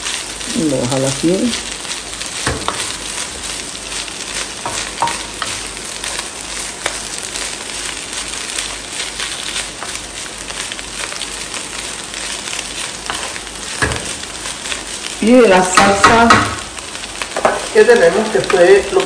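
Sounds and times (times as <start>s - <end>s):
chicken sizzling in frying pan: 0.0s - 19.0s
wooden spoon scraping a pan: 1.5s - 16.7s.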